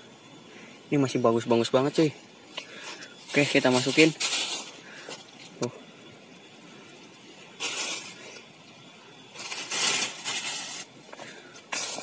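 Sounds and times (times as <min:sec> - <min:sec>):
fruit rustling in a bag: 0:02.7 - 0:05.6, 0:07.5 - 0:08.5, 0:09.3 - 0:12.0.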